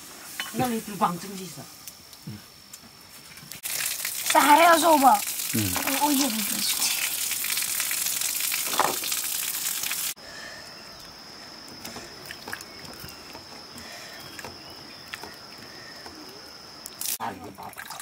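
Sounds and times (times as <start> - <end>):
water sloshing and splashing: 3.6 - 10.2.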